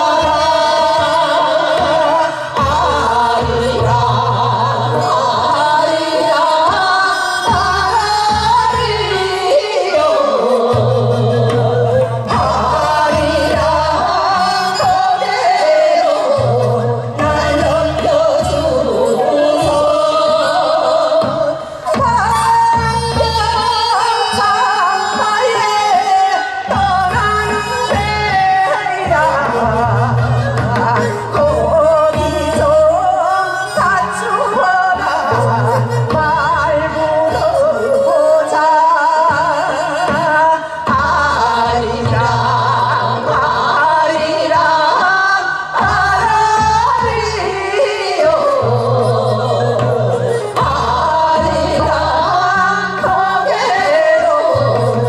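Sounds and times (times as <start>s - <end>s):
women singing folk song: 0.0s - 55.0s.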